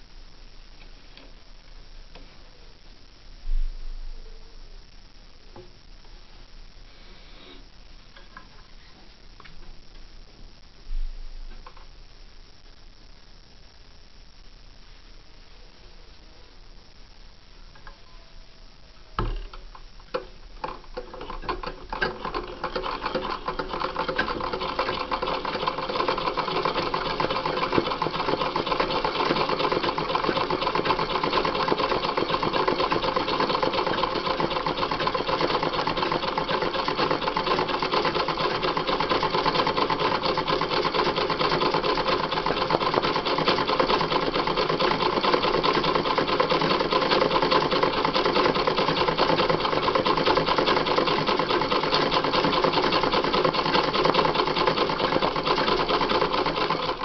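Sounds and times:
treadle sewing machine stitching: 20.6 - 57.0.

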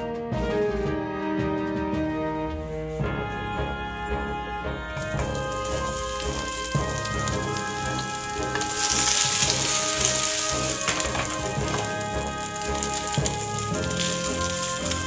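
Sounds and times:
eggplant sizzling in hot oil: 4.9 - 15.0.

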